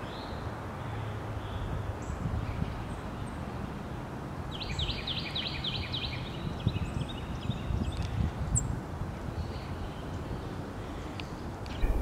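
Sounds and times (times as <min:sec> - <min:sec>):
low outdoor rumble: 0:11.6 - 0:12.0.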